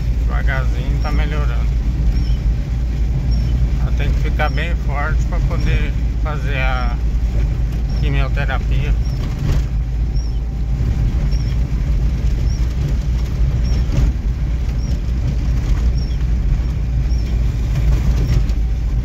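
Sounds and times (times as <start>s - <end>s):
car engine and road rumble: 0.0s - 19.0s
faint short squeak: 2.1s - 2.4s, 3.3s - 3.6s, 10.2s - 10.4s, 11.3s - 11.6s.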